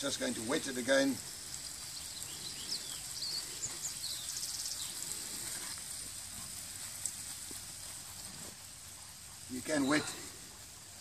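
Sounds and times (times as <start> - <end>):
bird chirping: 0.0 - 7.3
hose spray pattering on compost: 0.0 - 11.0.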